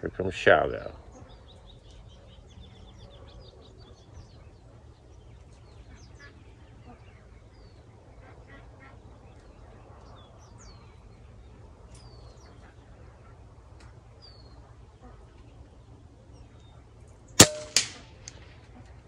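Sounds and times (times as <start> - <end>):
small birds chirping: 0.0 - 19.0
air rifle shot: 17.4 - 18.6
weaker crack: 17.4 - 19.0.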